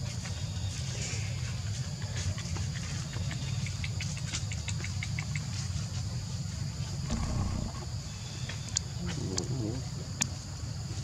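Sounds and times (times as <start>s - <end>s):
steady high hum: 6.8s - 8.3s
fluttering low rumble: 7.0s - 8.1s.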